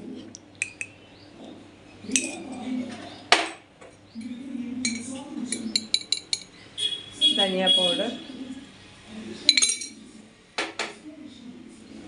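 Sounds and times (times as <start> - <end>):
metal spoon clinking on glass: 0.6 - 1.0, 2.1 - 2.6, 4.8 - 6.5, 9.5 - 10.0.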